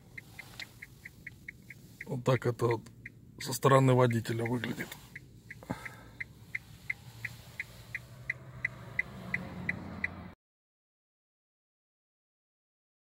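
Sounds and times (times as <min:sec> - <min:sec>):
electric car hum: 0:00.0 - 0:10.4
turn signal ticking: 0:00.0 - 0:10.4.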